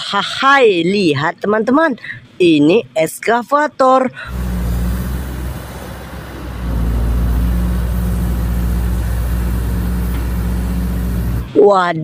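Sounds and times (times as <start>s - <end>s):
excavator diesel engine running: 4.2s - 11.6s.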